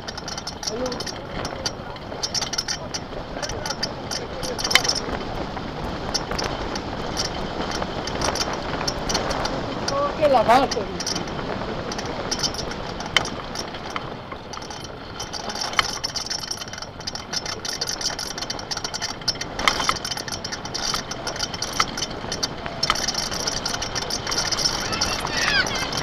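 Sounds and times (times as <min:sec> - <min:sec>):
cart wheels rumbling on asphalt: 0:00.0 - 0:26.0
knocks and rattles from bumps: 0:00.0 - 0:26.0.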